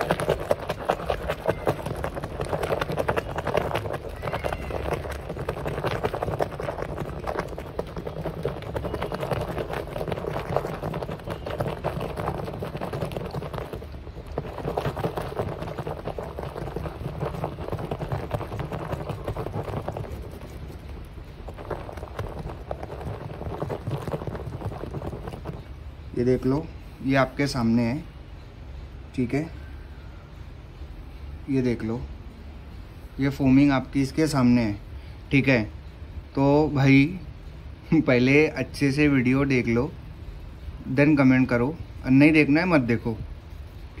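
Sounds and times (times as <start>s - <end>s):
water sloshing in plastic tub: 0.0s - 25.8s.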